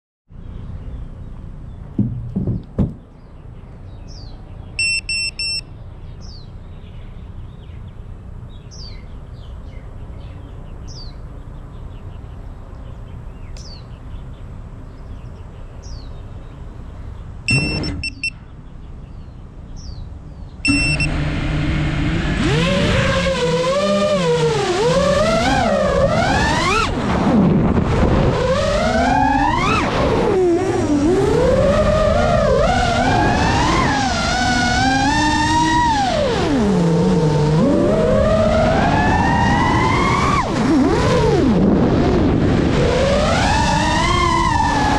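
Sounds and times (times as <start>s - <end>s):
birds chirping: 0.3s - 21.4s
drone beeper beeps: 4.8s - 5.7s, 17.5s - 18.4s, 20.6s - 21.2s
drone motors whining: 17.5s - 18.3s, 20.7s - 44.9s.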